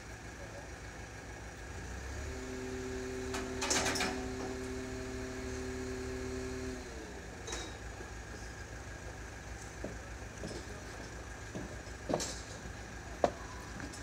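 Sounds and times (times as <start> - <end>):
crane hoist whining: 1.8 - 8.8.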